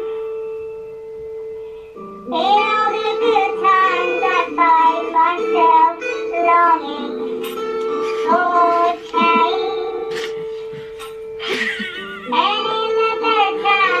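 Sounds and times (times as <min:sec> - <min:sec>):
backing music: 0:00.0 - 0:14.0
high voice singing: 0:08.1 - 0:10.4.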